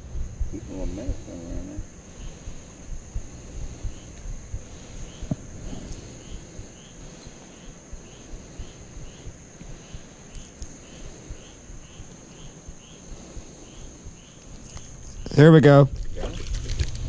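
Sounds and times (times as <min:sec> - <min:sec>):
faint low rumble: 0:00.0 - 0:17.0
insect chirping: 0:00.0 - 0:17.0
insect high trill: 0:00.0 - 0:17.0.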